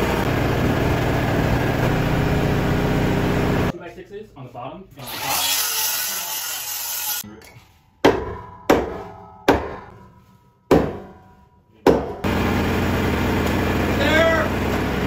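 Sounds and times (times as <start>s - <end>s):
engine hum: 0.0s - 3.7s, 12.2s - 15.0s
sharp ringing impacts: 8.0s - 12.3s.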